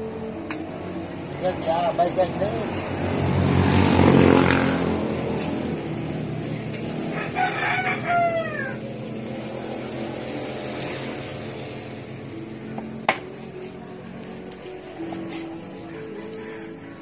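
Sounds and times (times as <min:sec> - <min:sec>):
rooster crowing: 0:07.0 - 0:09.0, 0:16.0 - 0:17.0.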